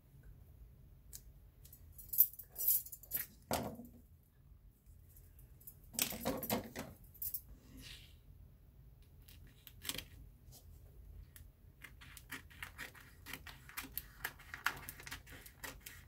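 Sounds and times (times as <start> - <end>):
paper and card handled: 11.8 - 16.0.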